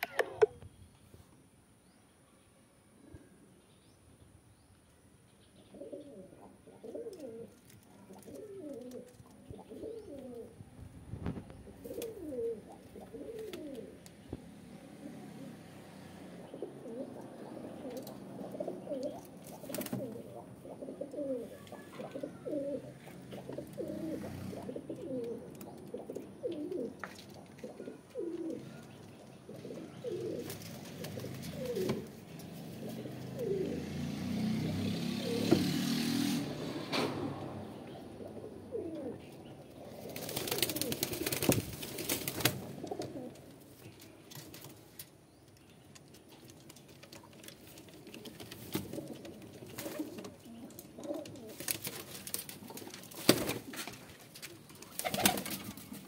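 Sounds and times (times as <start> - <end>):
sharp clicks: 0.0 - 0.6
pigeons cooing: 5.6 - 10.6, 11.4 - 43.6, 47.0 - 53.9, 54.5 - 56.0.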